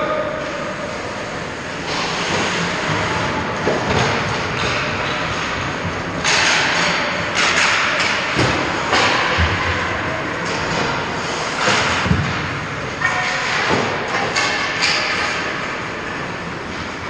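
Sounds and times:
skates scraping ice: 0.4s - 3.4s, 10.4s - 12.4s
sticks and puck clacking: 1.9s - 17.0s.

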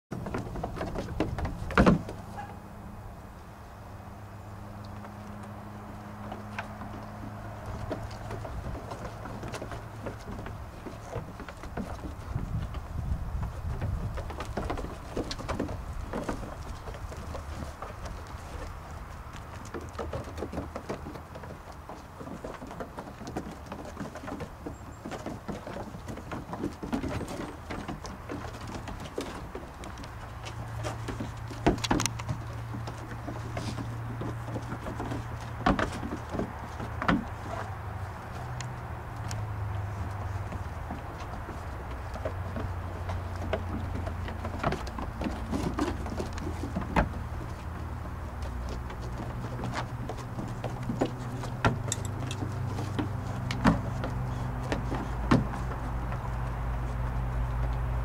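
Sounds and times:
hooves clattering on wooden deck: 0.1s - 58.0s.

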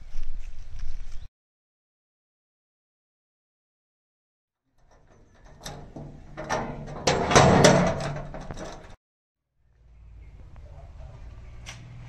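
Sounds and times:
metal door clanking and scraping: 4.8s - 9.0s.

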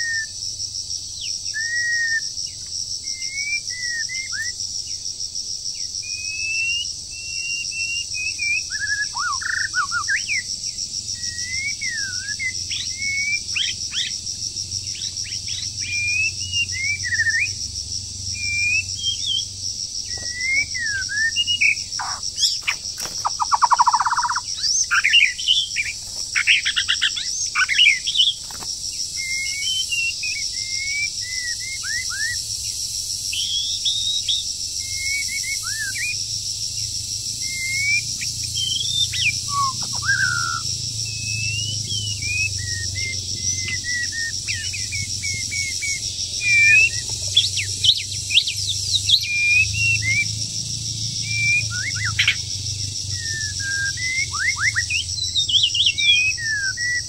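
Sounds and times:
pulsing insect chorus: 0.0s - 57.0s
songbird singing: 0.0s - 57.0s
bird churring rattle: 20.1s - 30.0s.

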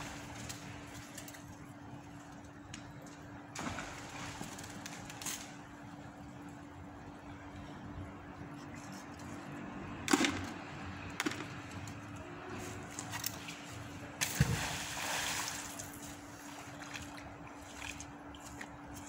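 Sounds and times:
magnet splashing into water: 14.2s - 16.0s.

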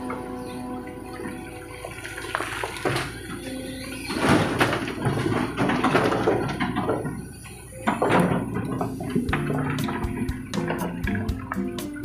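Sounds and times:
rubble pouring into metal trailer: 4.0s - 7.2s.

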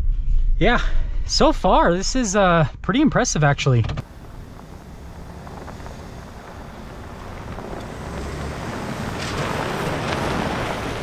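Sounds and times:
pickup truck engine rumble: 4.0s - 11.0s
wind rushing over microphone: 4.0s - 11.0s.

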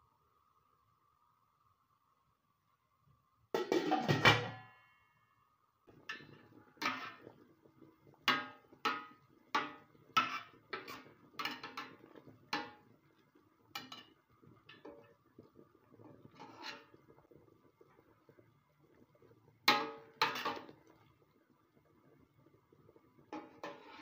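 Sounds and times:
metal pot clattering: 3.6s - 4.8s, 5.9s - 7.4s, 8.2s - 15.2s, 16.2s - 17.0s, 19.6s - 20.9s, 23.3s - 24.0s
wooden spoon knocking on pot: 8.2s - 13.0s, 19.6s - 20.7s.

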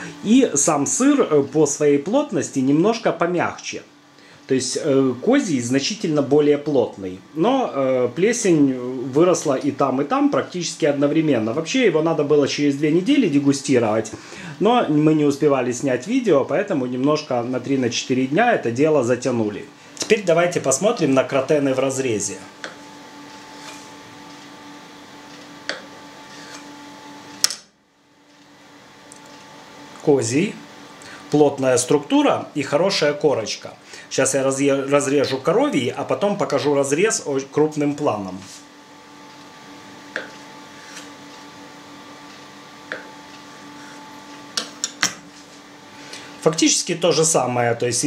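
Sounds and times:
steady low hum: 0.0s - 48.0s
blade tapping cutting board: 25.6s - 25.9s, 40.1s - 41.1s, 42.9s - 43.1s.

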